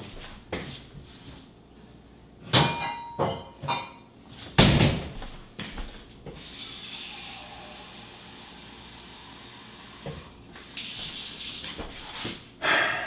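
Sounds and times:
dishes clattering and clinking: 2.5 - 4.1
faucet running into a cup: 6.4 - 11.6.

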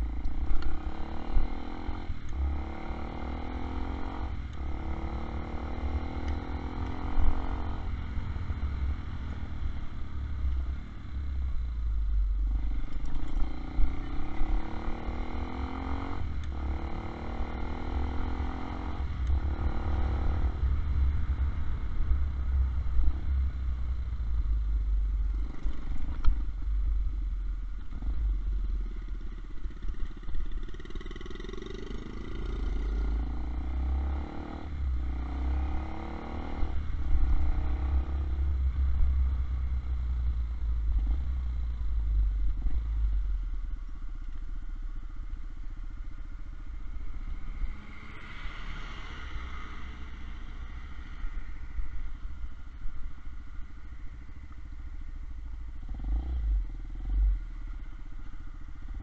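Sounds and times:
wind rumble on microphone: 0.0 - 30.6
motorcycle engine accelerating: 0.0 - 44.4, 55.7 - 59.0.

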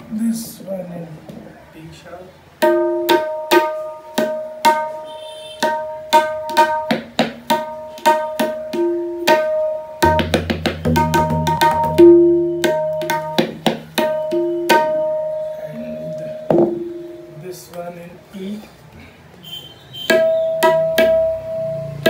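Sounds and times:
tabla finger strokes: 20.0 - 22.0.

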